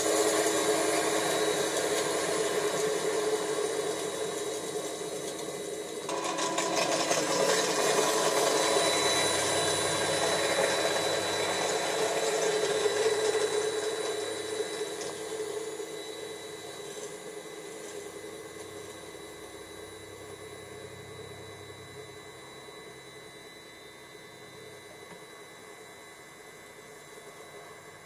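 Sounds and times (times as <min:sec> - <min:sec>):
small electric motors whirring: 0:00.0 - 0:19.1.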